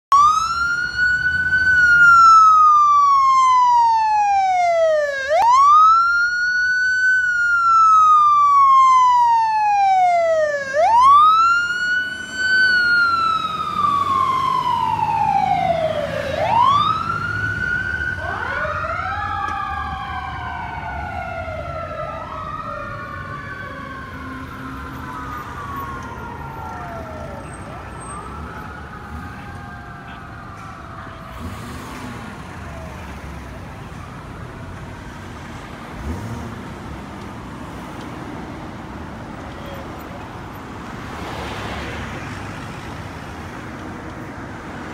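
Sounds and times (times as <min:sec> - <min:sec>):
second wail siren: 0:00.1 - 0:31.3
ambulance wail siren: 0:00.1 - 0:36.2.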